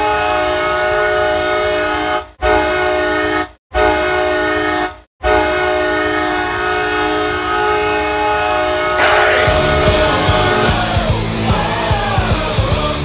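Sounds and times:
hockey goal horn blast: 9.0s - 11.3s.

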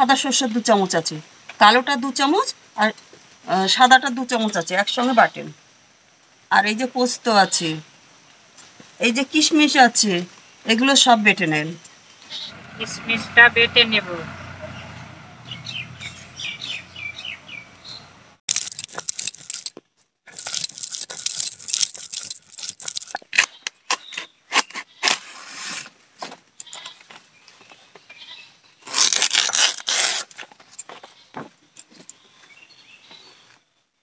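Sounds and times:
birds chirping: 12.2s - 18.4s
banana leaves rustling: 18.5s - 26.2s, 28.8s - 31.6s.

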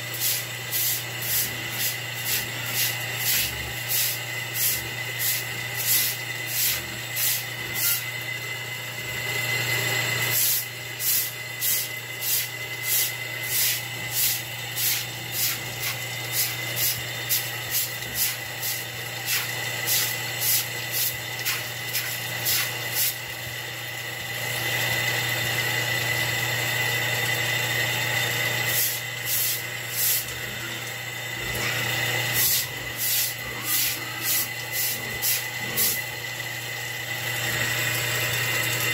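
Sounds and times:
running hose water: 0.0s - 8.2s, 10.2s - 25.4s, 28.6s - 38.9s
steady hum: 0.0s - 38.9s
scrubbing wet concrete floor: 0.1s - 8.0s, 10.3s - 23.3s, 28.7s - 30.5s, 31.4s - 36.1s.

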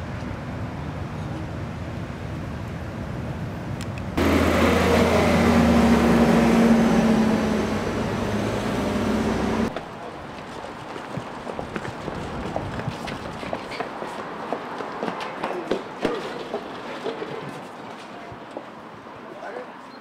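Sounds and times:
street noise: 0.0s - 20.0s
vehicle engine droning: 4.2s - 9.8s.

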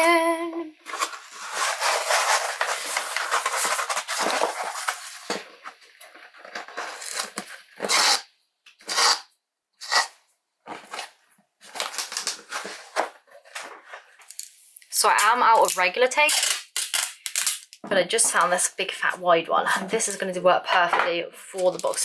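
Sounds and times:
cardboard and paper rustling: 0.8s - 7.9s, 10.6s - 14.3s, 21.5s - 22.0s.

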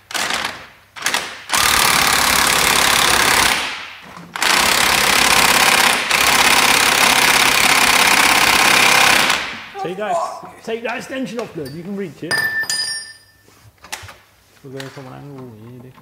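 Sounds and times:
impact wrench hammering: 0.0s - 9.8s, 11.6s - 13.4s.

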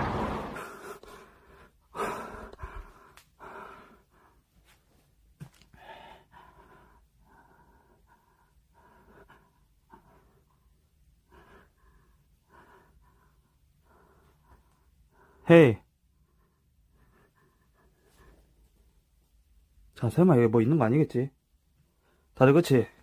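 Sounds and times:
faint breathing: 0.5s - 4.9s, 5.7s - 15.5s, 16.1s - 19.0s.

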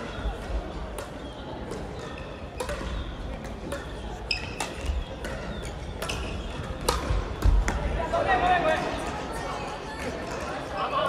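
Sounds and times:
shoe squeak: 3.8s - 6.7s.

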